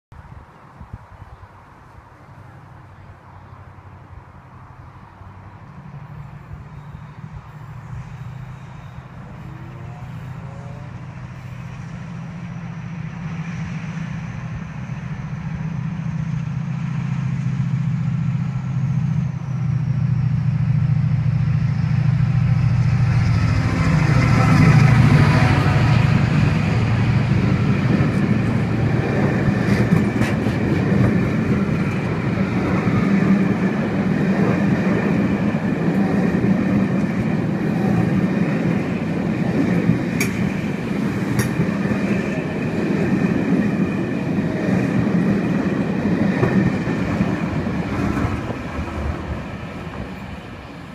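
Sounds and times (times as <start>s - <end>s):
locomotive engine drone: 1.4s - 50.9s
train wheels clattering over rail joints: 27.8s - 32.4s, 39.4s - 50.4s.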